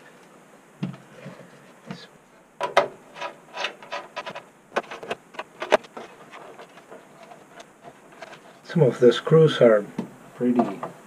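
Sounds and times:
metallic clicks and clunks: 0:02.6 - 0:05.8.

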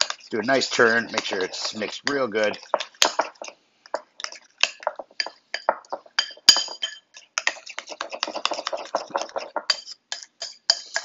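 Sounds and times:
spoon scraping and clinking glass bowl: 0:04.2 - 0:11.0.

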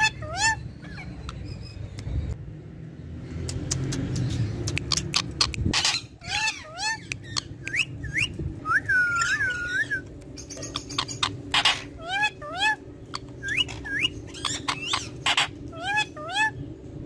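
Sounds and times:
parakeet whistling: 0:04.7 - 0:16.6
low rumble: 0:07.2 - 0:17.0.

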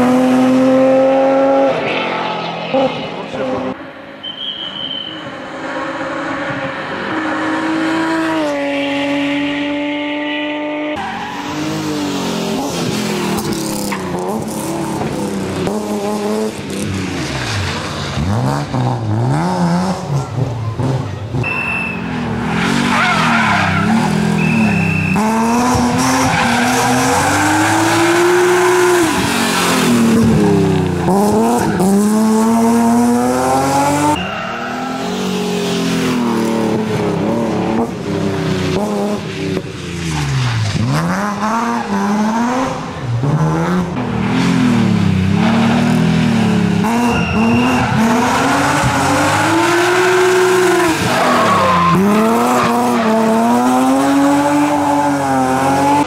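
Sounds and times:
car engine revving hard: 0:00.0 - 0:01.9, 0:22.2 - 0:39.6, 0:40.7 - 0:56.0
tyres squealing: 0:46.9 - 0:53.3.

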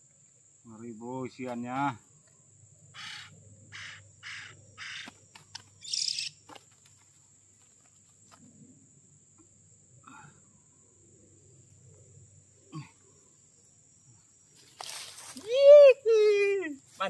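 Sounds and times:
high insect drone: 0:00.0 - 0:17.0
bird harsh rasping calls: 0:02.9 - 0:05.1, 0:05.8 - 0:06.4.

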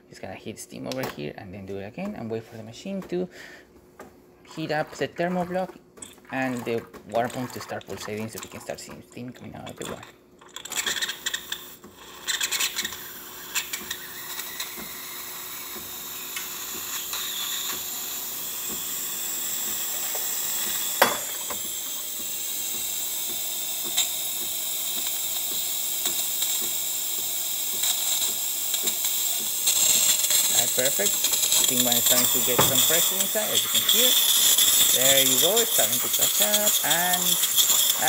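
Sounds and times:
steam wand hissing: 0:13.0 - 0:38.0.

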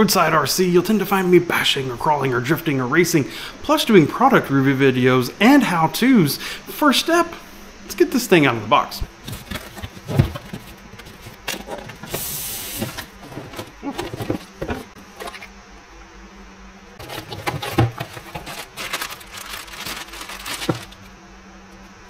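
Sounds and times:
cardboard scraping: 0:09.1 - 0:15.5, 0:17.0 - 0:21.1
plastic bag crinkling: 0:17.0 - 0:21.1.

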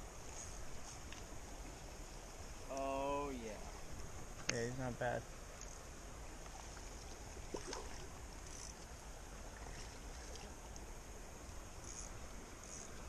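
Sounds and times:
creek running over stones: 0:00.0 - 0:13.0
faint ticks: 0:00.2 - 0:01.3, 0:04.0 - 0:04.7, 0:05.5 - 0:09.0, 0:09.6 - 0:13.0.

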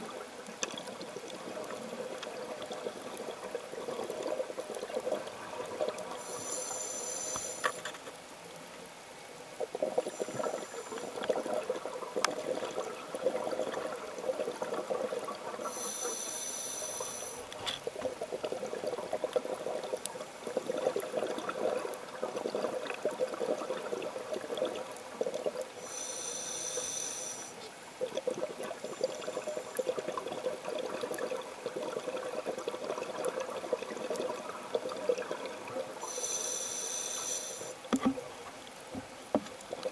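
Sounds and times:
regulator hissing inhalation: 0:06.2 - 0:07.8, 0:10.1 - 0:11.2, 0:15.7 - 0:17.5, 0:25.8 - 0:27.6, 0:36.0 - 0:37.8.

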